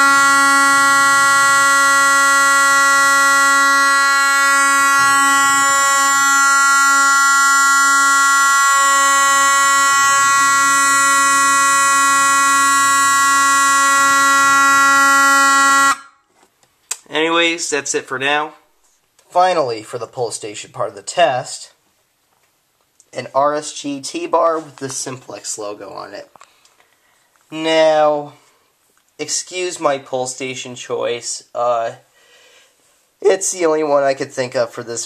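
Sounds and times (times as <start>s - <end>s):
fire alarm horn buzzing: 0.0s - 16.3s.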